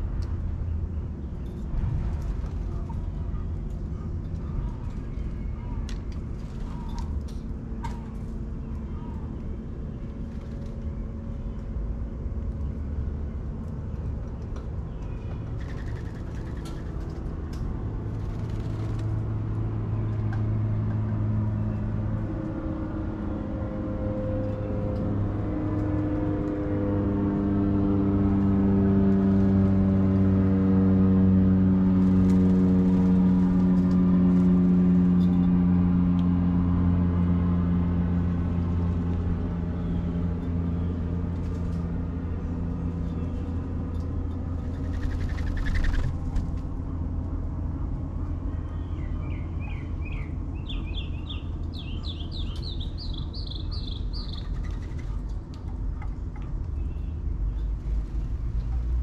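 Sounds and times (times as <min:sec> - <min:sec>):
passing engine drone: 0:17.2 - 0:52.9.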